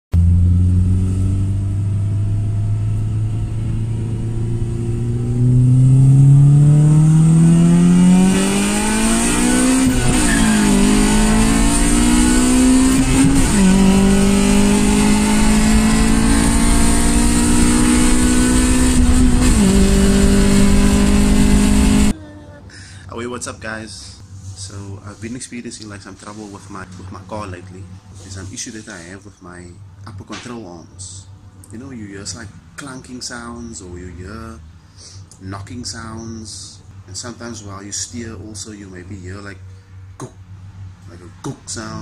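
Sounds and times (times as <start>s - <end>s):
car engine accelerating: 0.1s - 22.2s.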